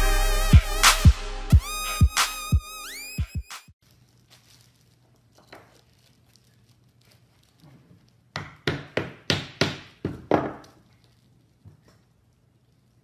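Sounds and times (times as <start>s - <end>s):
hammer striking wooden block: 8.3s - 10.6s.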